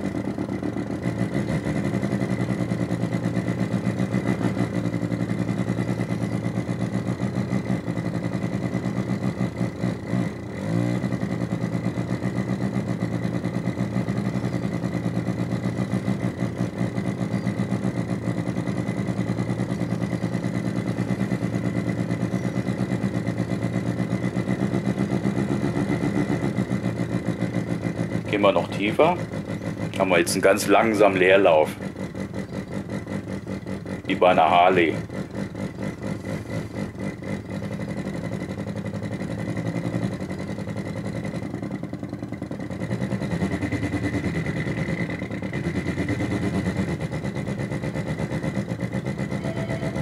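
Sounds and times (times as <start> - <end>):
synthesized engine throb: 0.0 - 50.0
thin high whistle: 49.4 - 50.0.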